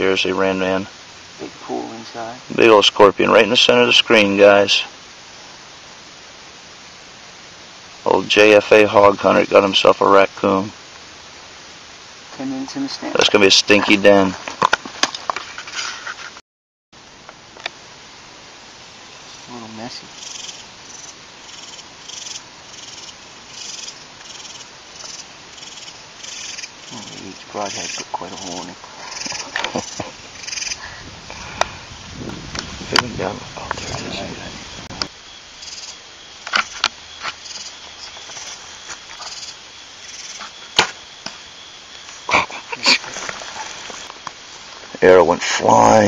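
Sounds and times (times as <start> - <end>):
background hiss: 0.0 - 16.4, 17.0 - 46.0
clicks and rustles: 14.4 - 16.4
high buzzy animal calls: 18.4 - 44.2.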